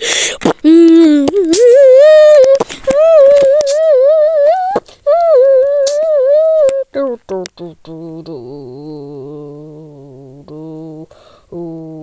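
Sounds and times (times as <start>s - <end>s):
wavering humming vocal tone: 0.6s - 12.0s.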